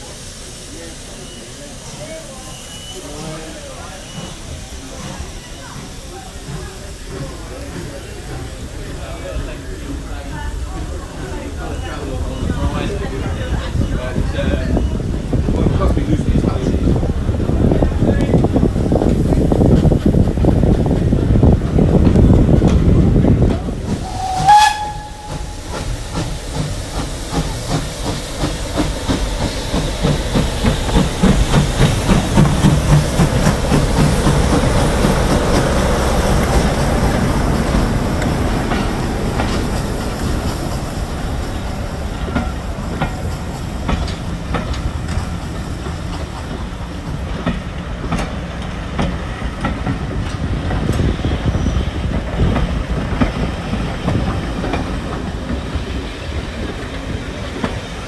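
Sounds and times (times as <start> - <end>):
train rumble: 0.0 - 58.0
train wheels clicking on rails: 0.0 - 58.0
brief high tone: 24.1 - 25.6.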